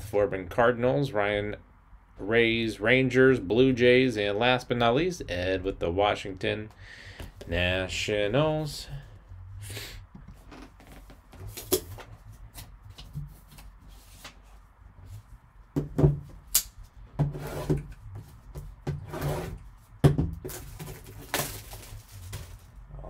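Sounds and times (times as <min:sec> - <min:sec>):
rubbing and scraping on cardboard box: 0:17.3 - 0:18.4, 0:19.0 - 0:19.6.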